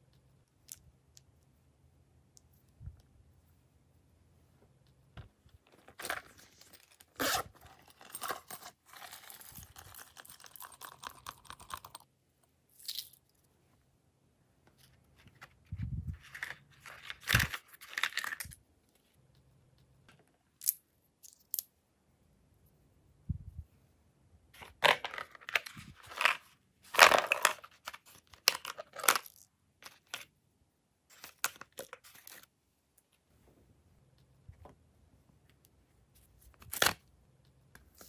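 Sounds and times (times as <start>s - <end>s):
plastic charms crinkling: 7.7s - 12.0s, 16.2s - 18.6s.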